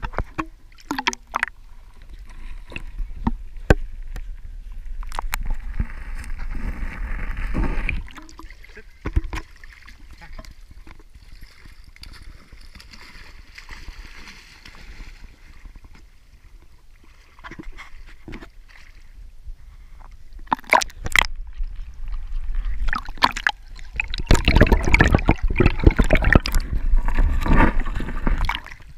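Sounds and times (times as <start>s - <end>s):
underwater gurgling and bubbles: 0.0s - 28.9s
water lapping and sloshing: 0.0s - 28.9s
sharp splashes: 22.8s - 26.7s.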